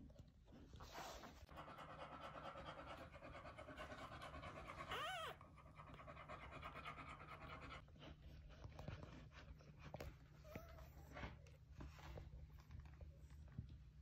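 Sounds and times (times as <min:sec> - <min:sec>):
dog whining: 0:04.6 - 0:05.5, 0:10.4 - 0:11.2.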